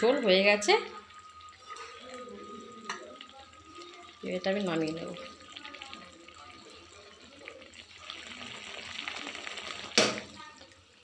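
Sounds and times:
curry simmering and bubbling: 0.0s - 11.0s.

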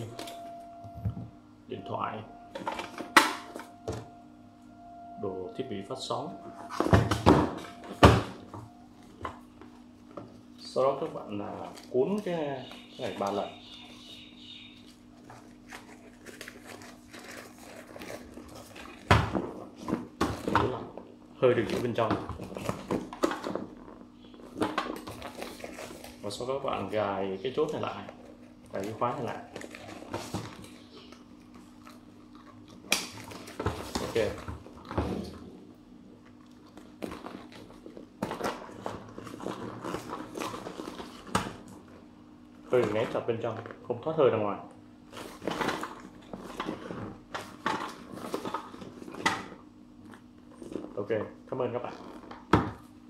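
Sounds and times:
dry bag rustling and crinkling: 14.7s - 35.0s, 36.2s - 41.7s.

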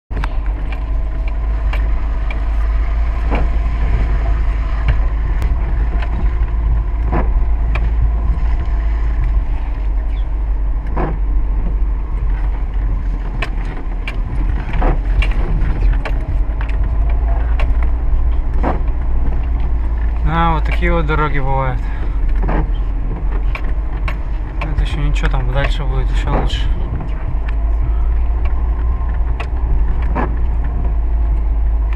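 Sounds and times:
engine and road rumble: 0.0s - 31.9s
car body knocks and rattles: 0.1s - 21.5s.

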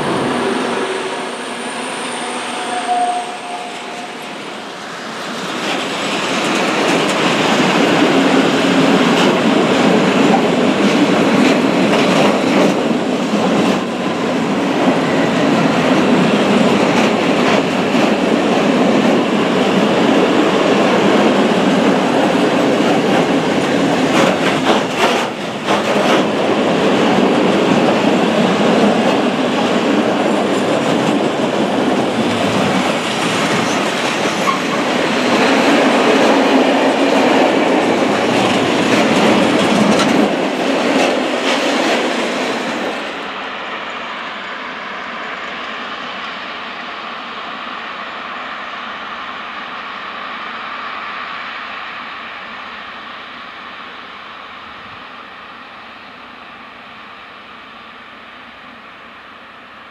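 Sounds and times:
freight train rolling past: 0.0s - 59.9s
wheels clickety-clack on rail joints: 3.4s - 43.2s.

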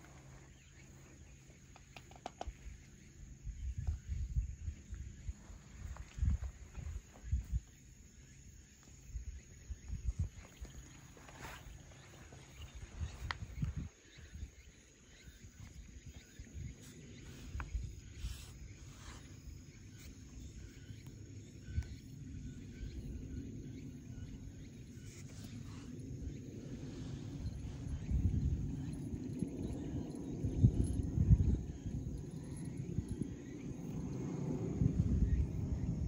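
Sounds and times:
faint low outdoor rumble: 0.0s - 36.0s
light clicks and taps: 1.7s - 2.6s.

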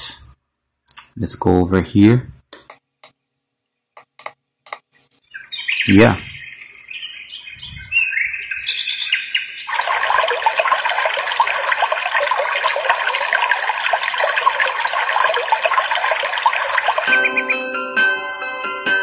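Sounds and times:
recorded birdsong alarm: 4.8s - 17.8s.

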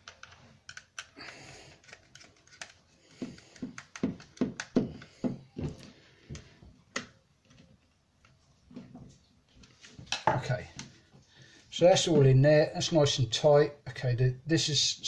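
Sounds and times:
screwdriver knocks and clicks: 3.2s - 5.5s.

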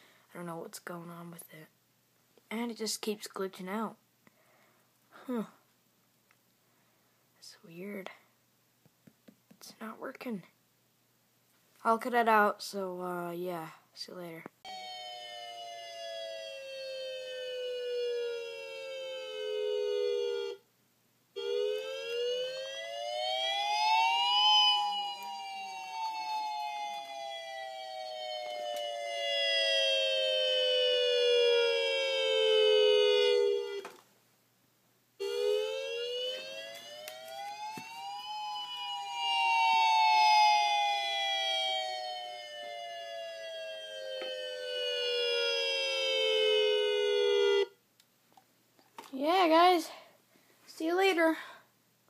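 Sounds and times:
dual-tone wail siren: 14.7s - 20.7s, 21.4s - 34.0s, 35.2s - 47.8s.

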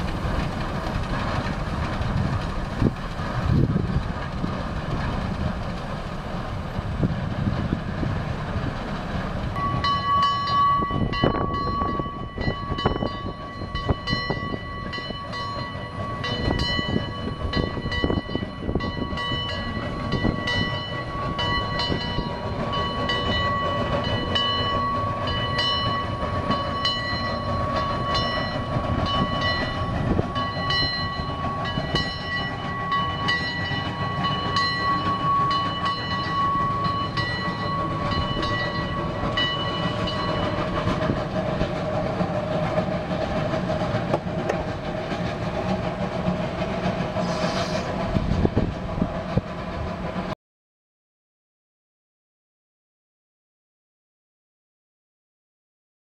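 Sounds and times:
steam locomotive chuffing: 0.0s - 50.4s
steam whistle: 47.2s - 47.9s.

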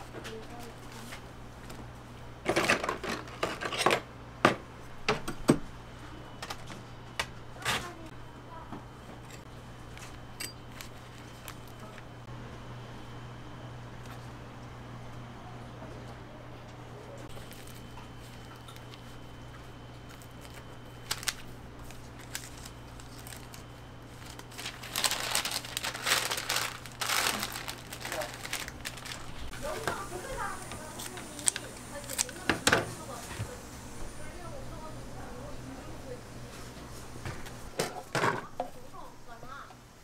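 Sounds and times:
steady low hum: 4.0s - 40.0s
waffle scraping on paper wrapper: 20.1s - 32.5s.

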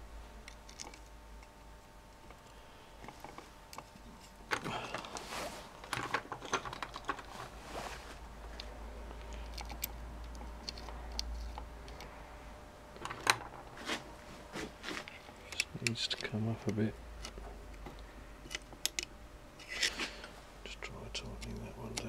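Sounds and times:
small metal clicks and taps: 15.5s - 19.1s.

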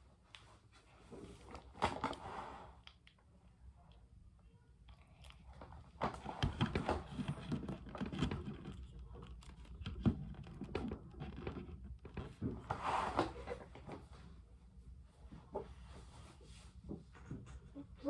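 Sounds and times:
plastic figures clicking and tapping: 5.6s - 12.4s.

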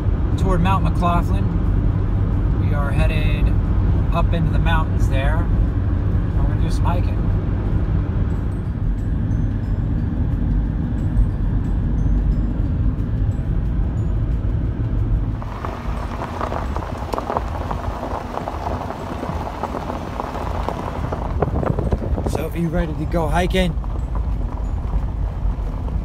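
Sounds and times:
road and engine rumble: 0.0s - 26.0s
tyres rolling over gravel: 15.4s - 26.0s.

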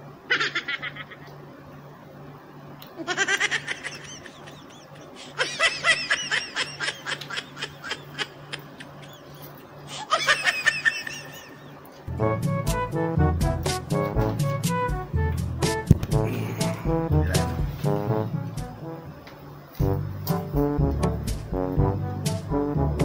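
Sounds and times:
high-pitched laughter: 0.3s - 1.4s, 3.0s - 11.8s
low pulsing hum: 12.1s - 19.2s, 19.8s - 23.0s.

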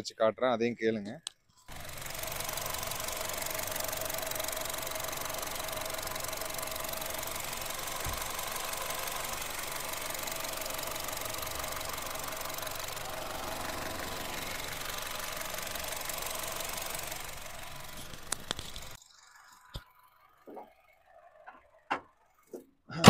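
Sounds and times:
car engine idling: 1.7s - 22.6s
sharp clicks: 16.2s - 19.0s.

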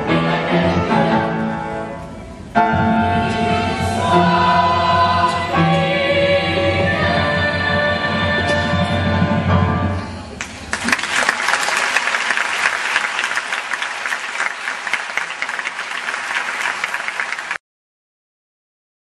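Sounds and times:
choir singing chord: 2.6s - 9.9s
audience applauding: 10.4s - 17.6s.

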